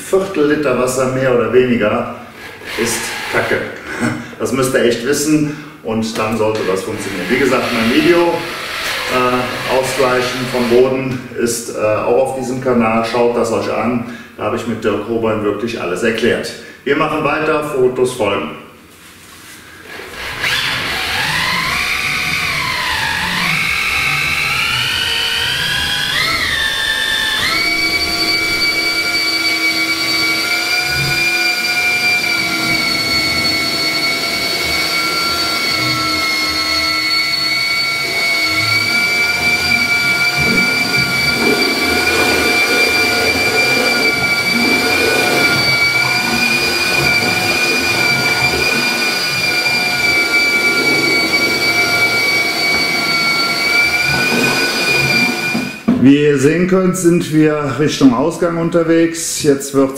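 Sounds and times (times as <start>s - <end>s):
electric motor whine: 6.6s - 10.8s, 19.8s - 56.0s.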